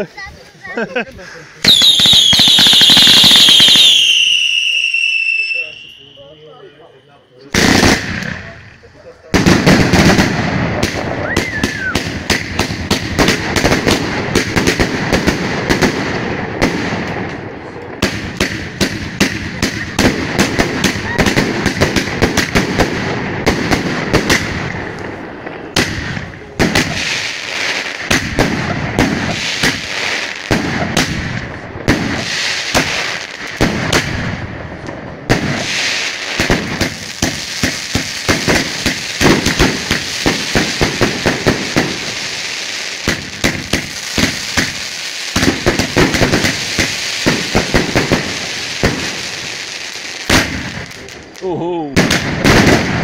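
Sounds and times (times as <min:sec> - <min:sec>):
firework fountains hissing: 0:07.7 - 0:14.2, 0:35.4 - 0:51.6
firework pops and bangs: 0:09.3 - 0:53.0.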